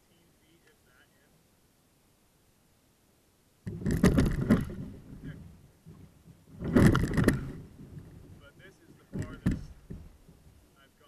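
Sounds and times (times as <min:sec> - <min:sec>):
kayak paddle splashing: 0:03.7 - 0:08.4.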